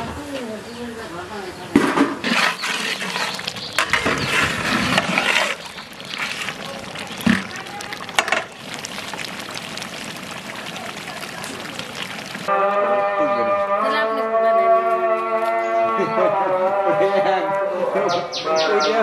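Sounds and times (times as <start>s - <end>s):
metal spatula stirring: 2.2s - 8.6s
curry bubbling and sizzling: 2.2s - 12.5s.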